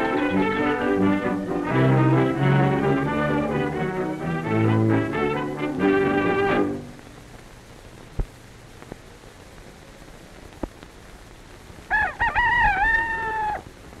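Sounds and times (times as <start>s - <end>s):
film soundtrack hiss: 0.0s - 14.0s
rooster crowing: 11.9s - 13.7s.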